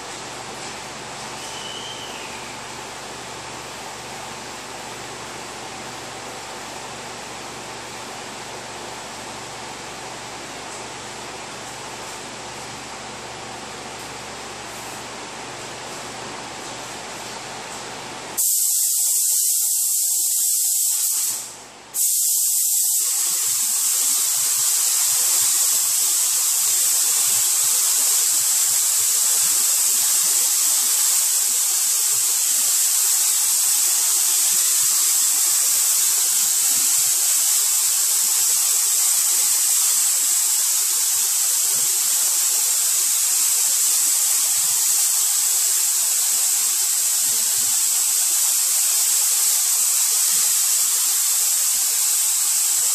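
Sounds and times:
spray gun hissing: 0:18.3 - 0:52.9.

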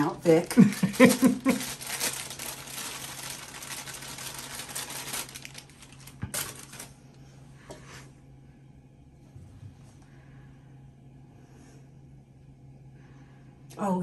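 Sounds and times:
bag of powder rustling: 0:00.0 - 0:07.0.

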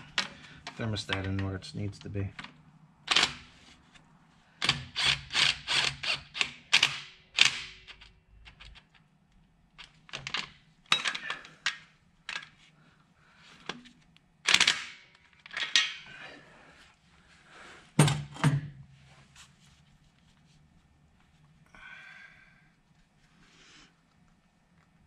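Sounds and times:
metallic clicks of tools and parts: 0:09.8 - 0:12.6, 0:14.5 - 0:16.1.

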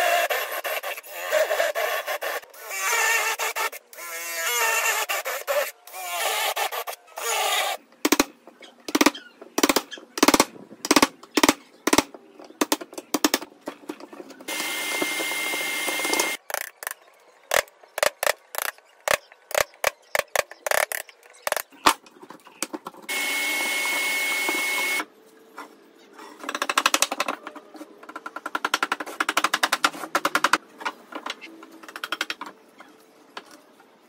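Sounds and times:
cordless drill whirring: 0:14.5 - 0:16.4, 0:23.1 - 0:25.0.

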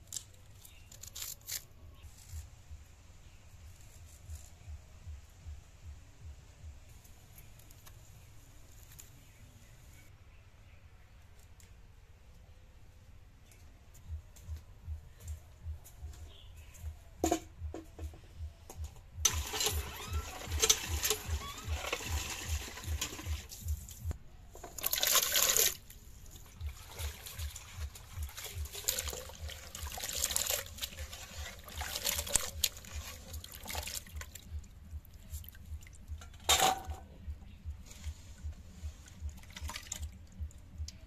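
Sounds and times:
water sloshing in metal pot: 0:19.3 - 0:23.6, 0:24.6 - 0:34.8.

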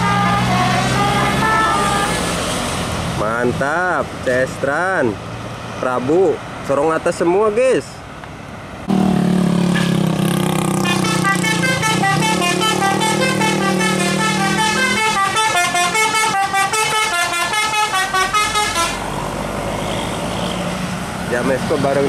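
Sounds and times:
musical air horn tune: 0:00.0 - 0:02.3, 0:10.8 - 0:19.0
bus engine droning: 0:00.0 - 0:06.1, 0:08.7 - 0:22.0.

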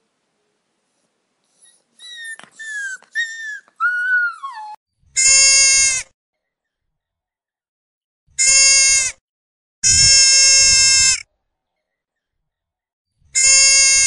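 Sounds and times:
puppies whining: 0:01.4 - 0:04.8
loud bleating call: 0:05.2 - 0:06.0, 0:08.4 - 0:09.2, 0:09.8 - 0:11.2, 0:13.4 - 0:14.0.

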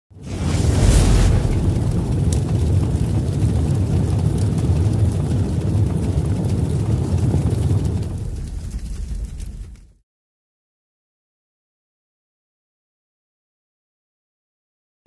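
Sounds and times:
low steady rumbling: 0:00.2 - 0:10.0.

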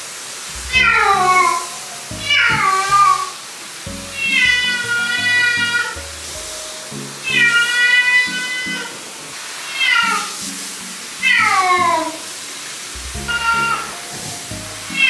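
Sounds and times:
soft background music: 0:00.5 - 0:15.0
cat meowing loudly: 0:00.7 - 0:01.7, 0:09.7 - 0:10.3, 0:13.3 - 0:13.9.

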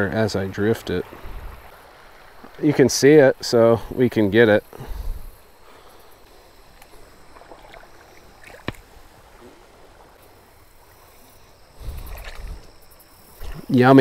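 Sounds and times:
river water lapping at bank: 0:00.0 - 0:14.0.

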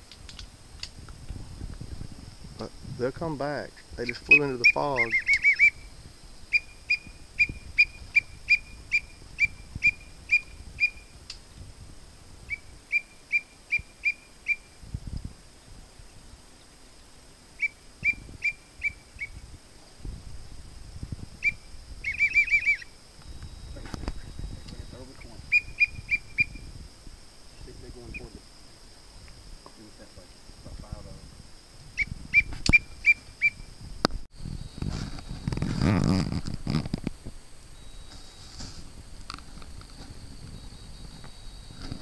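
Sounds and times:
warbling whistle trill: 0:17.6 - 0:19.4, 0:21.4 - 0:22.9
whistle call peeps: 0:21.4 - 0:22.9.

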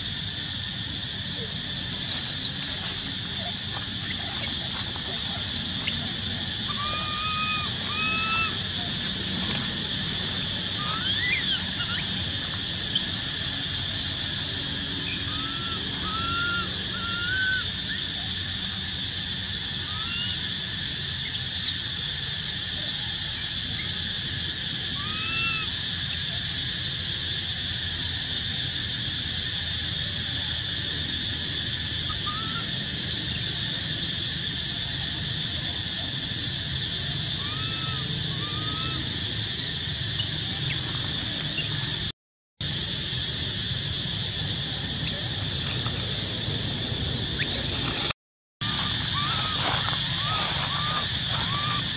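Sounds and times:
high insect drone: 0:00.0 - 0:51.9
baby monkey squeaking: 0:01.9 - 0:08.6, 0:10.8 - 0:13.6, 0:37.4 - 0:39.0, 0:44.3 - 0:48.1, 0:48.7 - 0:51.9.

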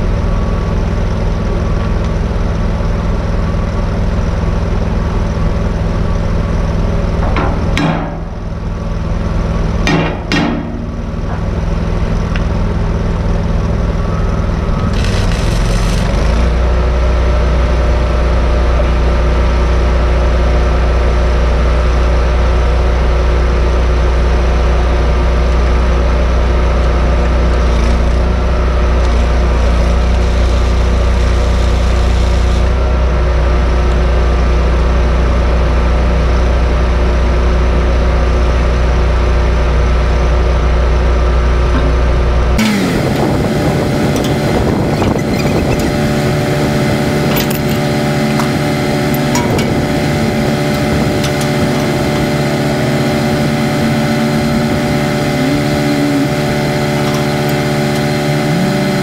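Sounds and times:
engine humming: 0:00.0 - 0:59.0
sharp knocks: 0:07.2 - 0:08.4, 0:09.8 - 0:11.6.

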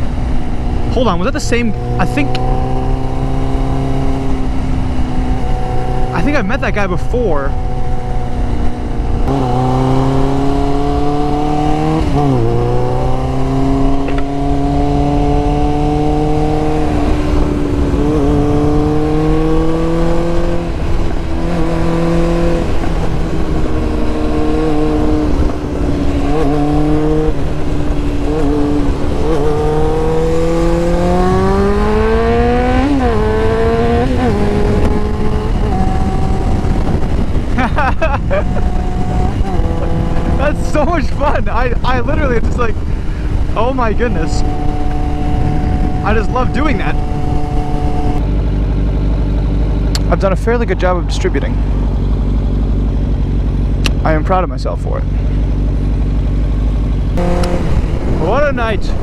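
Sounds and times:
motorcycle engine revving: 0:00.0 - 0:59.0
wind noise: 0:07.5 - 0:48.3, 0:57.0 - 0:59.0.

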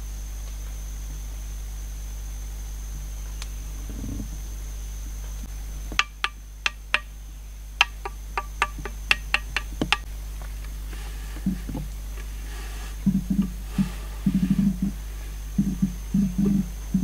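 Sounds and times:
hand tapping clay pot: 0:05.9 - 0:07.1, 0:07.8 - 0:10.1.

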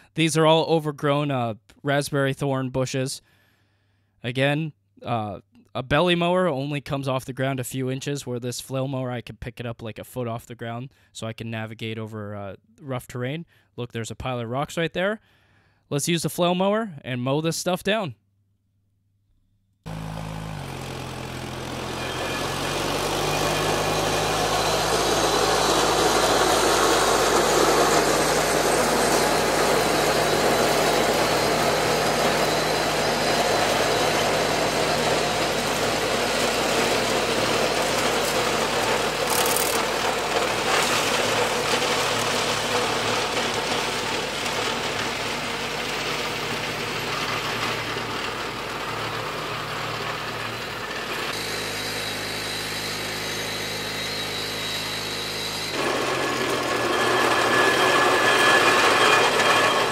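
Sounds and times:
flail mower shredding bushes: 0:19.9 - 0:59.9
tractor engine running under load: 0:19.9 - 0:59.9.

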